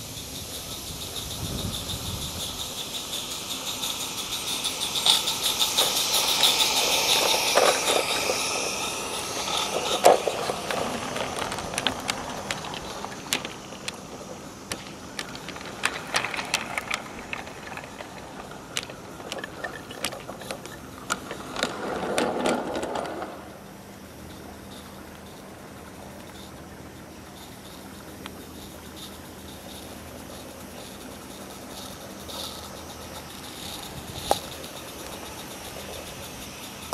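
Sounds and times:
steam hiss: 0.0s - 21.8s, 22.4s - 36.9s
running gear whirring: 0.0s - 36.9s
wagon wheels clicking on track: 0.0s - 36.9s.

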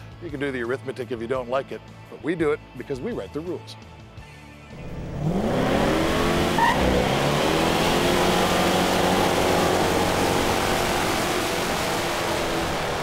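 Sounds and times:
car engine revving hard: 4.8s - 13.0s.

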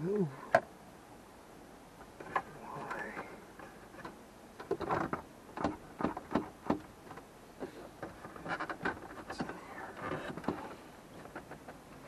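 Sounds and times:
hands and tools on plastic trim: 2.2s - 11.8s.

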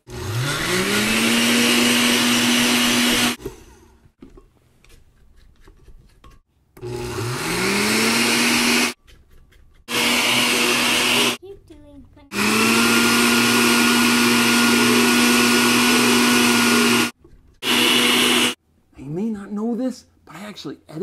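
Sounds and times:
blender motor whining: 0.0s - 4.0s, 6.8s - 9.0s, 9.9s - 11.4s, 12.3s - 18.6s.

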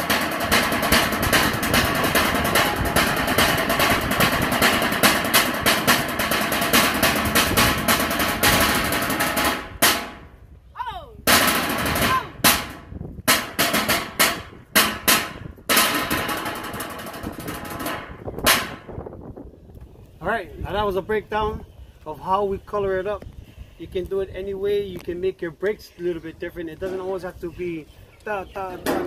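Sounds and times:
sticks drumming on a tin can: 0.0s - 10.1s, 11.3s - 18.8s.

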